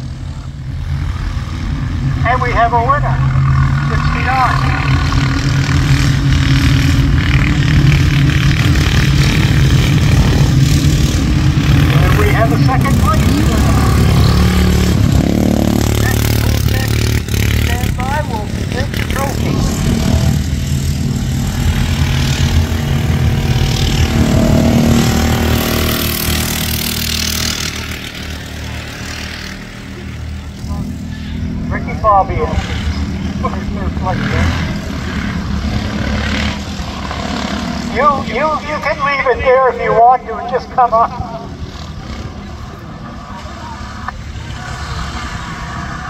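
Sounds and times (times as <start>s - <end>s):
small engine droning: 2.8s - 38.9s.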